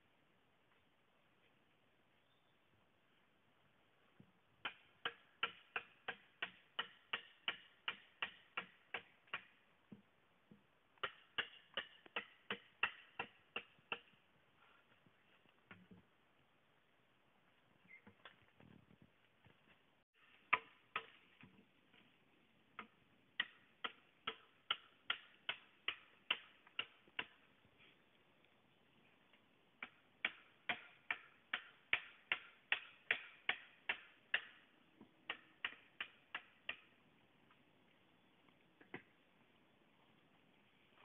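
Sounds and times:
machete chopping bamboo: 4.6 - 9.6, 11.0 - 14.2, 20.2 - 21.2, 22.8 - 27.4, 29.8 - 34.6, 35.2 - 36.9.

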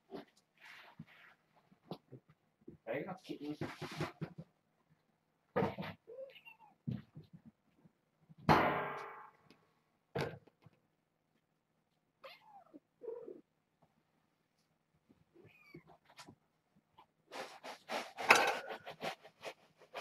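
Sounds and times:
cats meowing: 5.7 - 6.9, 12.2 - 13.5, 15.3 - 16.3.

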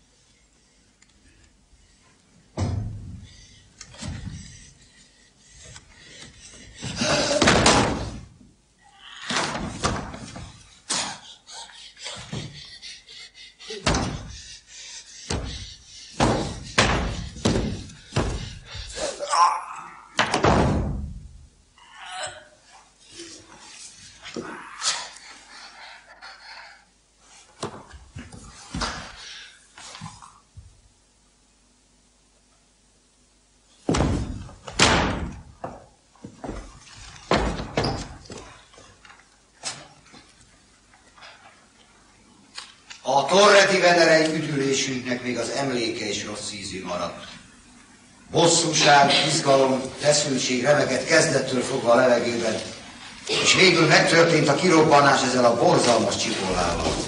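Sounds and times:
sharp bangs and thuds: 15.3 - 18.6, 20.2 - 21.3, 33.9 - 35.4
knocks: 16.2 - 18.5.

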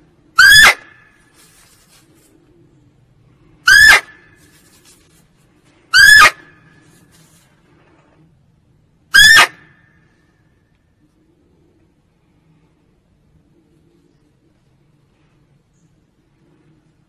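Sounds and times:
deer barking: 0.4 - 1.0, 3.6 - 4.2, 5.9 - 6.5, 9.1 - 9.7.

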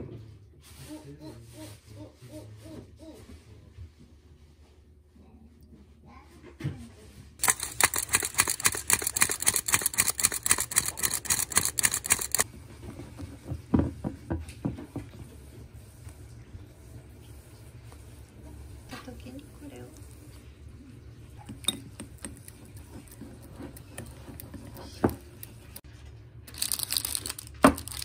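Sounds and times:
sieve rattling: 7.4 - 12.4
stirring batter: 7.4 - 12.4.

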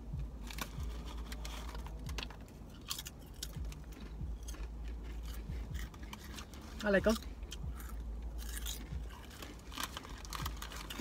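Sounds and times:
potato chips crunching: 0.4 - 11.0
chip bag crinkling: 8.4 - 11.0.

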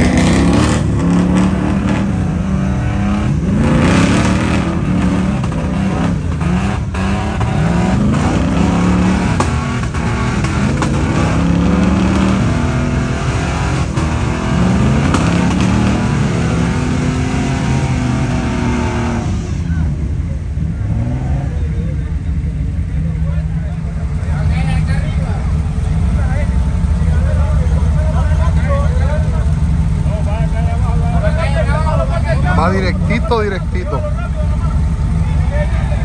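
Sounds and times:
engine revving: 0.0 - 22.5.

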